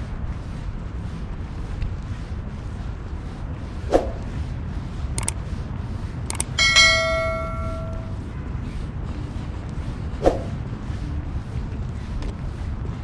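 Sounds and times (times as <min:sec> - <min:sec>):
wind noise on microphone: 0:00.0 - 0:13.0
mouse clicks: 0:05.2 - 0:05.4, 0:06.3 - 0:06.6
bell ding: 0:06.6 - 0:08.1.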